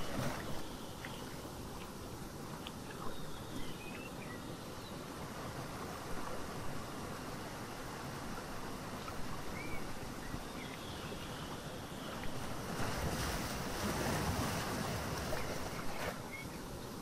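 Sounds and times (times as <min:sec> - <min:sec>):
ocean surf: 0:11.4 - 0:16.4.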